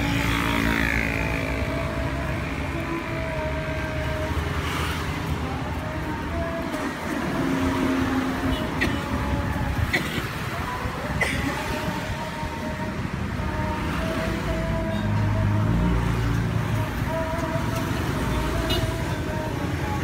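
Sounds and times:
road traffic passing: 0.0 - 20.0.

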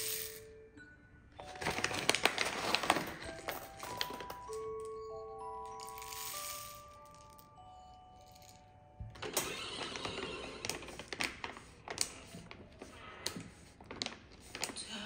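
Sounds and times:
paper bag crinkling: 1.4 - 4.8, 9.9 - 15.0.

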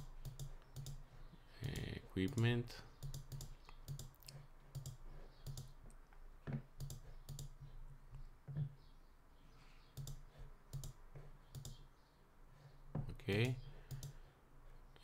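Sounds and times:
computer mouse clicking: 0.2 - 1.0, 3.0 - 6.0, 6.8 - 7.6, 9.9 - 11.8, 13.9 - 14.2.

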